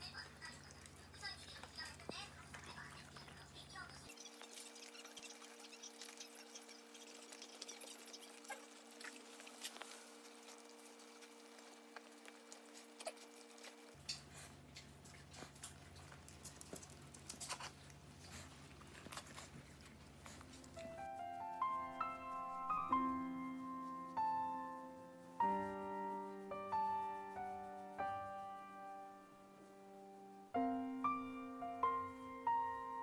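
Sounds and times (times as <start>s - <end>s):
dogs chewing and smacking: 0.1s - 21.0s.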